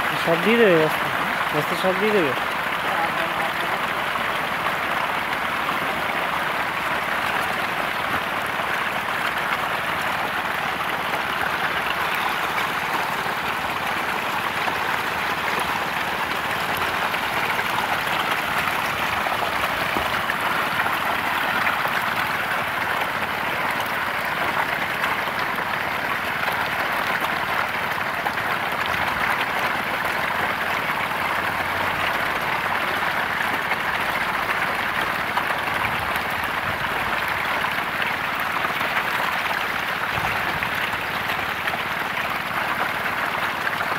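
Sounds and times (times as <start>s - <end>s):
catfish splashing in shallow water: 0.4s - 43.9s.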